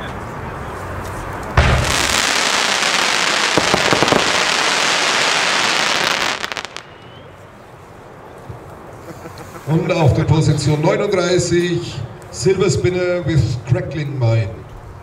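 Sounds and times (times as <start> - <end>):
firework bang: 1.6 - 7.2
firework stars crackling: 1.6 - 7.4.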